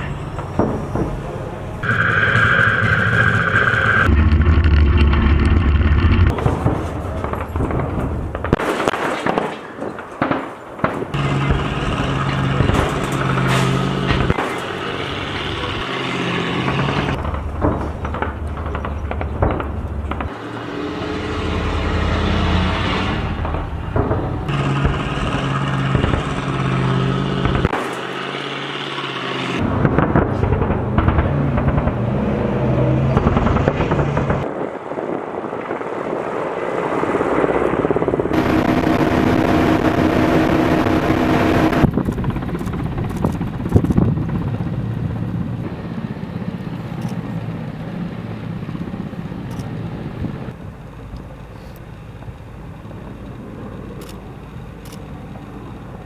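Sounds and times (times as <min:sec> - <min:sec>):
helicopter flying low: 0:00.0 - 0:08.6, 0:09.8 - 0:56.0
armored vehicle engines running: 0:00.0 - 0:56.0
sharp crack: 0:03.5 - 0:20.6, 0:22.8 - 0:34.6.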